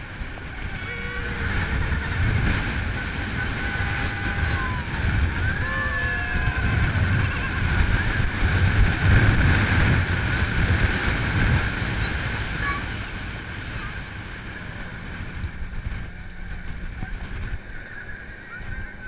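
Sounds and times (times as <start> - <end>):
vehicle engine rumble: 0.0 - 19.0
wind buffeting microphone: 0.0 - 19.0.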